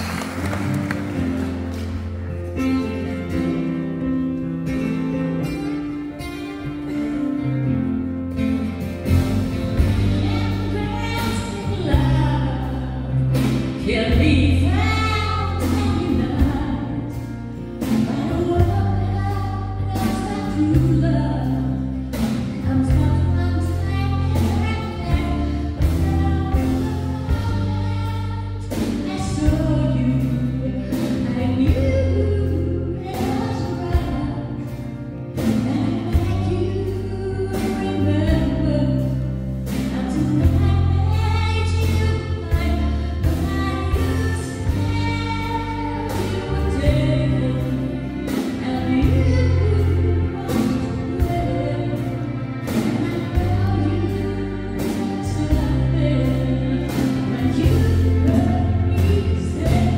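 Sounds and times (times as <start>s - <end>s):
acoustic guitar: 0.0s - 59.9s
electric bass line: 0.0s - 59.9s
woman singing: 9.7s - 59.9s.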